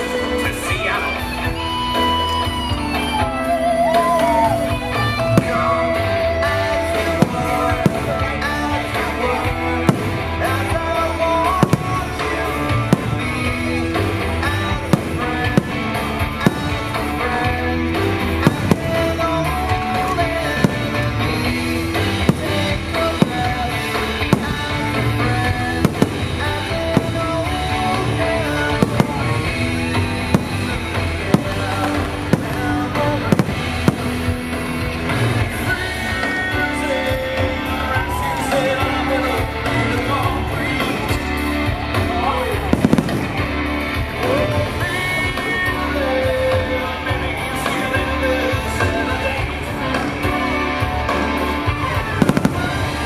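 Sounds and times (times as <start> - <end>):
rock music: 0.0 - 53.0
fireworks bangs: 4.0 - 36.7, 42.6 - 43.6, 51.1 - 53.0.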